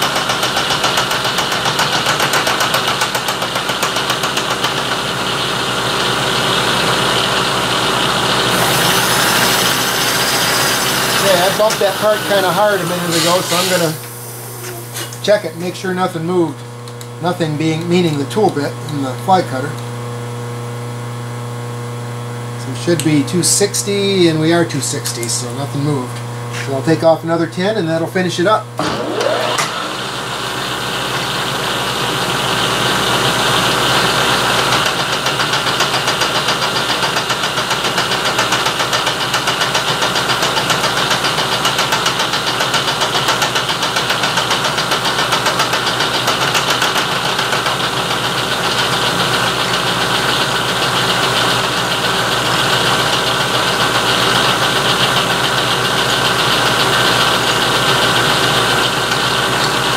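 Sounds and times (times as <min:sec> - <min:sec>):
milling machine cutting steel: 0:06.2 - 0:17.1, 0:28.8 - 0:36.7, 0:44.6 - 0:59.9.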